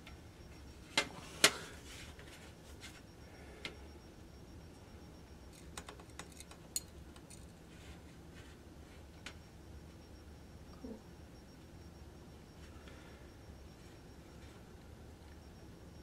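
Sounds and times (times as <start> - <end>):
tools clicking and tapping: 5.5 - 7.5.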